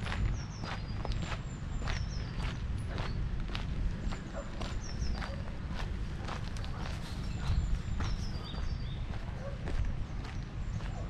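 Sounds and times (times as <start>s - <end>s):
footsteps on dirt path: 0.0s - 11.0s.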